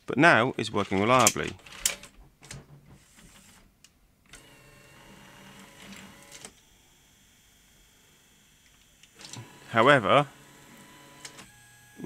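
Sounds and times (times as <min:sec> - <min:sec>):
small motor whirring: 0:04.4 - 0:12.0
tape mechanism clicks: 0:11.2 - 0:11.6.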